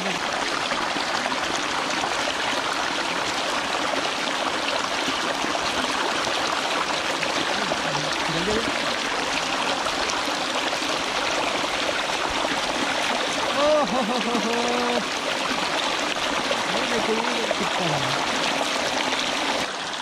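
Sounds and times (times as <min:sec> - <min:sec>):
water gushing onto a net: 0:00.0 - 0:20.0.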